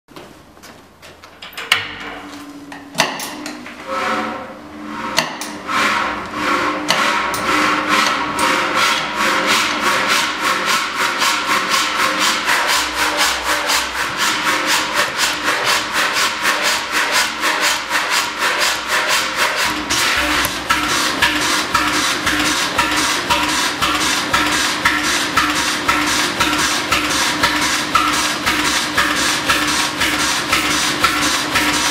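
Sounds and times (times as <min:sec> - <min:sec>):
machine hum: 0:02.0 - 0:31.9.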